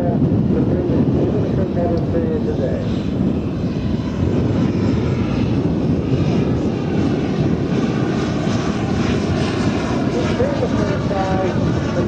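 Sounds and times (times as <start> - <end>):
model jet turbines rushing: 0.0 - 12.0.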